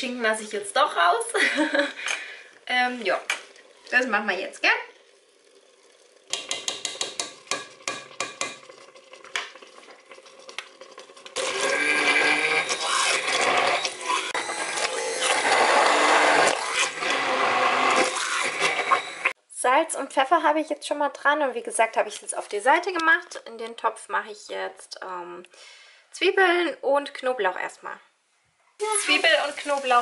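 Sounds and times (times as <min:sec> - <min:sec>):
immersion blender running: 0:11.4 - 0:19.4.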